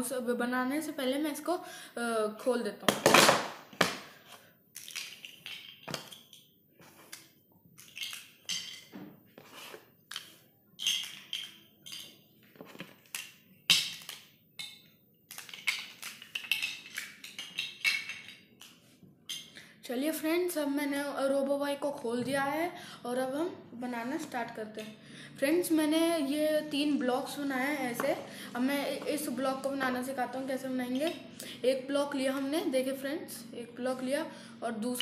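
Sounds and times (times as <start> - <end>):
plastic toy blocks clacking: 4.8 - 6.5, 7.8 - 8.9, 10.1 - 19.5.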